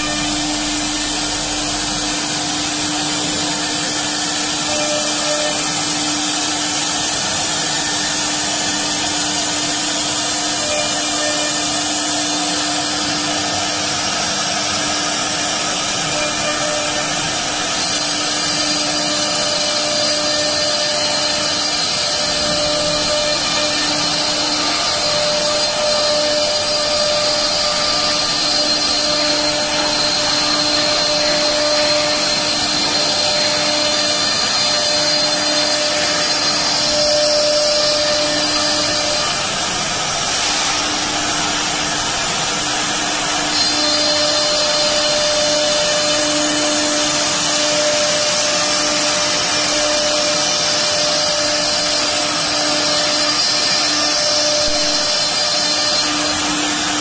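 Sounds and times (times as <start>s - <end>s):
router spindle motors whining: 0.0s - 57.0s
bits cutting wood: 15.8s - 42.0s.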